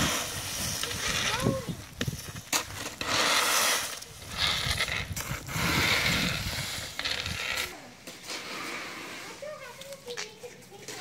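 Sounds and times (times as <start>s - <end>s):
rakes scraping leaves on concrete: 0.0s - 11.0s.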